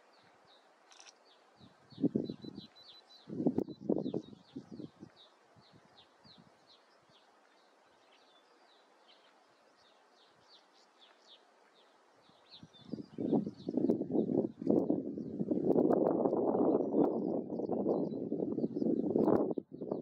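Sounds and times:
fledgling birds chirping: 0:00.0 - 0:20.0.

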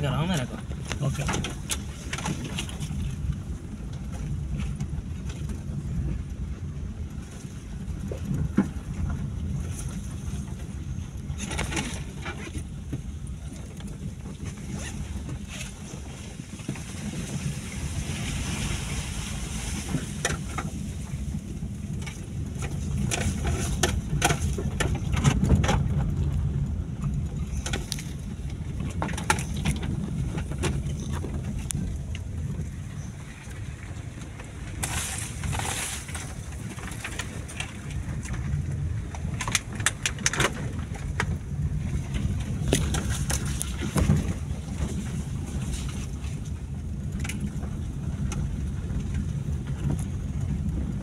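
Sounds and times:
low rumble of engine and tyres: 0:00.0 - 0:51.0
car knocks and rattles over bumps: 0:19.6 - 0:33.2.

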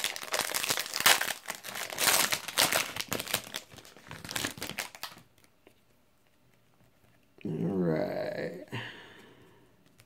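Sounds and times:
wrapper tearing and crinkling: 0:00.0 - 0:05.5.

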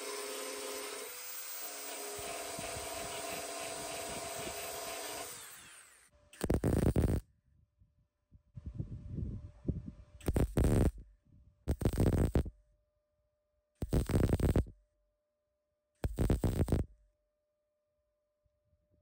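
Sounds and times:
welder crackling and buzzing: 0:00.0 - 0:07.2, 0:10.2 - 0:11.0, 0:11.7 - 0:12.5, 0:13.8 - 0:14.7, 0:16.0 - 0:16.9.

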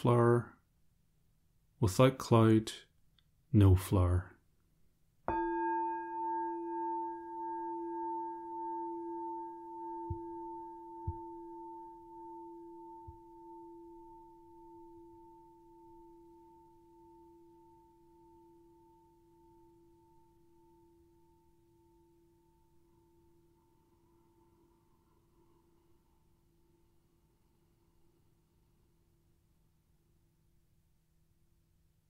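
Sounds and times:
singing bowl ringing: 0:05.3 - 0:23.8.

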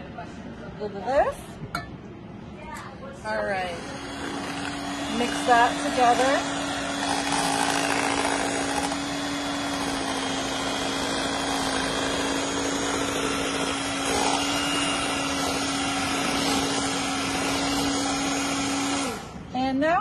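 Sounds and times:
electric hand mixer running: 0:03.5 - 0:19.4.

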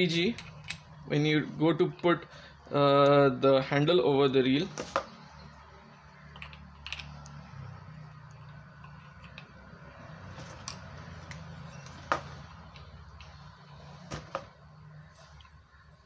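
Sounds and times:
handling noises: 0:04.6 - 0:05.4, 0:08.4 - 0:16.0.

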